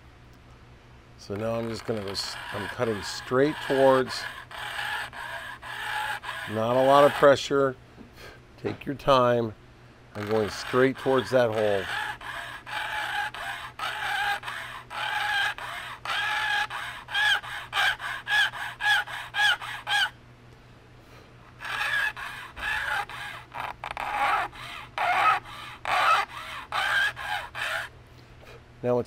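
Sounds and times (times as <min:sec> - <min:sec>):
file squealing on wooden grip: 0:01.2 - 0:07.5, 0:10.2 - 0:20.2, 0:21.5 - 0:27.9.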